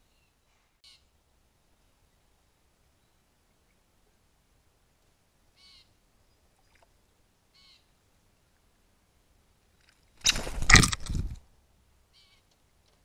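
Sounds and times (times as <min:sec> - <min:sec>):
faint short bird calls: 0:00.0 - 0:01.1, 0:05.6 - 0:06.0, 0:07.5 - 0:07.9, 0:12.1 - 0:12.5.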